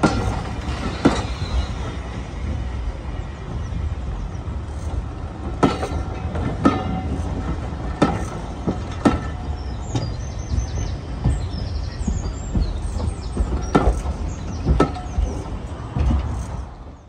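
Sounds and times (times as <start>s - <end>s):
train low rumble: 0.0s - 17.0s
train wheels knocking over rail joints: 0.0s - 17.0s
high wheel squeal: 0.1s - 2.6s.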